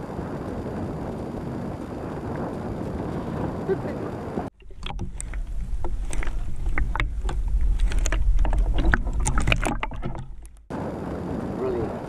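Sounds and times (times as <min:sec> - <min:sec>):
muffled underwater water rumble: 0:00.0 - 0:12.0
bubbles clicking and popping: 0:04.6 - 0:10.7.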